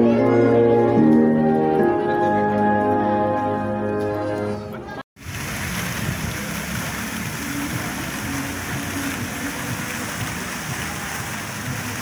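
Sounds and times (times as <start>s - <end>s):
fountain jets splashing into pool: 5.2s - 12.0s.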